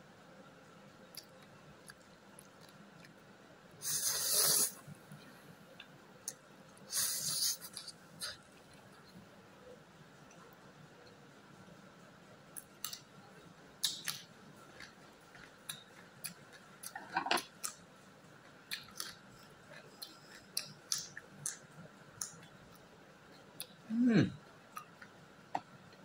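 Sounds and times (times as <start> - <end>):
eggplant crunching being chewed: 13.8 - 23.8.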